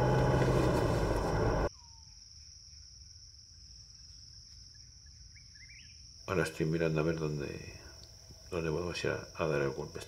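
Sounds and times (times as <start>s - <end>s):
car cabin noise: 0.0s - 1.7s
crickets chirping: 0.0s - 10.0s.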